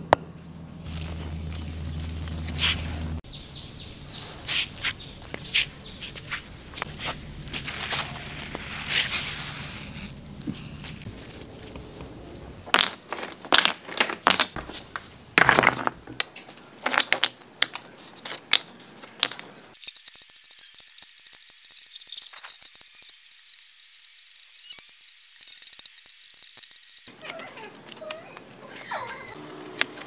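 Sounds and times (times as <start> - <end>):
bricks knocking together: 12.7 - 19.4.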